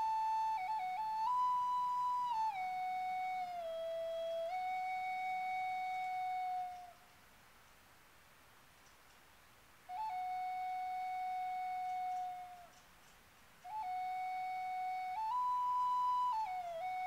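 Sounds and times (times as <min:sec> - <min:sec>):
flute playing slowly: 0:00.0 - 0:07.1, 0:09.8 - 0:12.8, 0:13.6 - 0:17.0.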